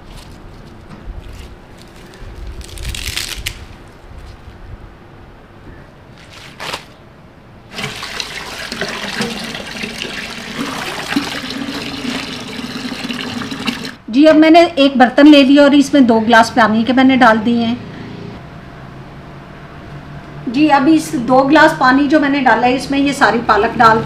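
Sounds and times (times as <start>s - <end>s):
leaves rustling: 0.0s - 4.8s, 6.0s - 7.1s
tap running into plastic tub: 7.7s - 14.0s.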